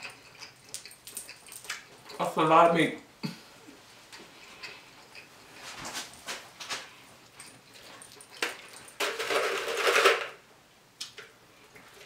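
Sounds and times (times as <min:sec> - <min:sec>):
wet mouth clicks and smacks: 0:00.2 - 0:02.1.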